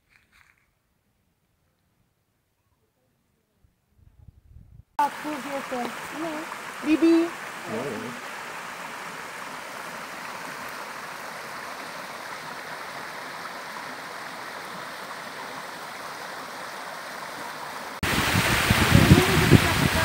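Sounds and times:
mountain stream rushing: 5.0s - 20.0s
waterfall water pouring over rocks: 5.0s - 20.0s.

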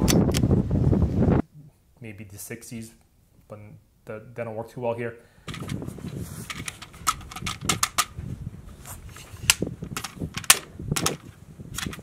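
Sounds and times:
rifle bolt metallic clicks: 6.5s - 8.1s, 9.5s - 11.2s
magazine inserted and removed: 6.5s - 8.2s, 9.4s - 12.0s.

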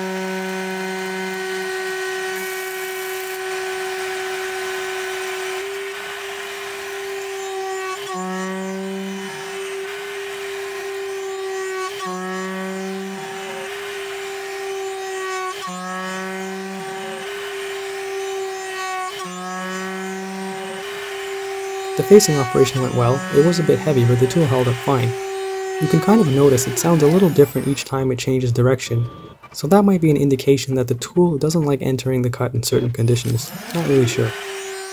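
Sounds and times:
milling machine cutting steel: 0.2s - 29.8s, 32.8s - 34.9s.

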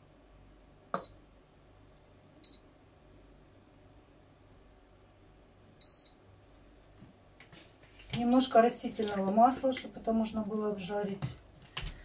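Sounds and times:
appliance control panel beeping: 5.8s - 6.2s.

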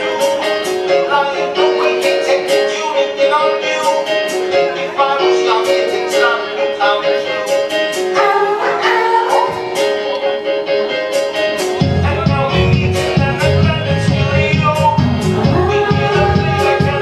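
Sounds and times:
pop music over sound system: 0.0s - 17.0s.

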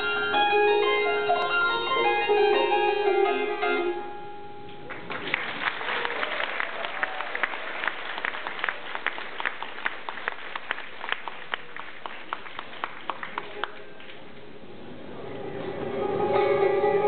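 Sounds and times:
plucked zither notes: 0.0s - 4.9s
audience applause: 4.8s - 14.3s.

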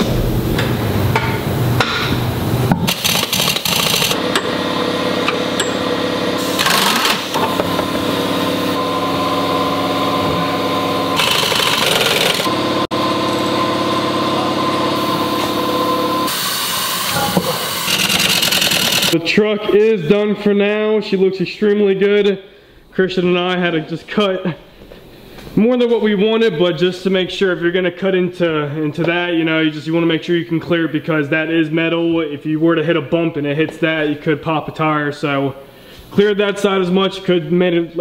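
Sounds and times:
fast hammering rattle: 2.9s - 4.2s, 11.2s - 12.5s, 17.9s - 19.2s
power tool whining: 2.9s - 19.2s.

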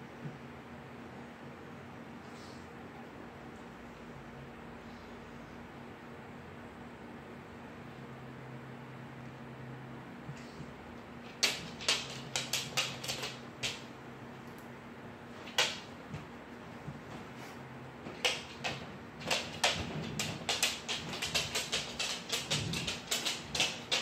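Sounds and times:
steady low hum: 0.0s - 24.0s
sharp irregular clicks: 11.4s - 13.8s, 18.2s - 24.0s.

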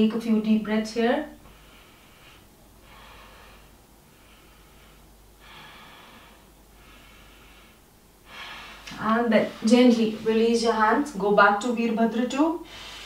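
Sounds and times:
person breathing deeply: 1.4s - 10.3s, 12.6s - 13.0s.

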